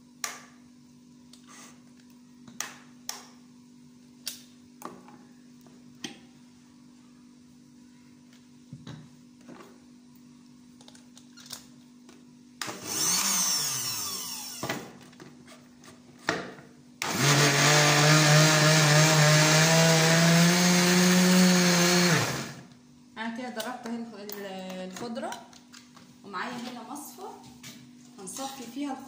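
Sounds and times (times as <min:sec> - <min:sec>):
blender motor running: 0:12.6 - 0:14.8, 0:17.0 - 0:22.7
blender clicks: 0:17.0 - 0:22.5.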